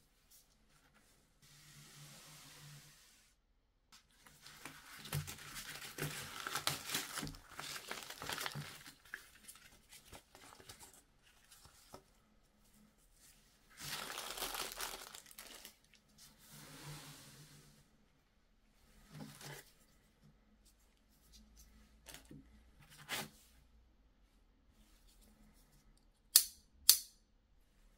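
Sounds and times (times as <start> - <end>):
paper rustling and crinkling: 4.1 - 12.1, 13.7 - 16.0.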